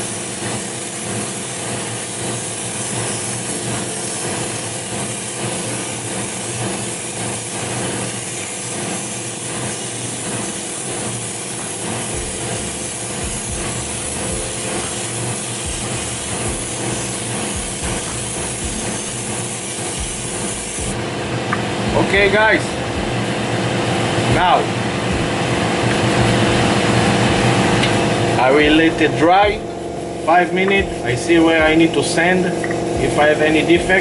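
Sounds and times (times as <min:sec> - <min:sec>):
airbrush spraying hiss: 0:00.0 - 0:21.0
extractor fan humming: 0:00.0 - 0:34.0.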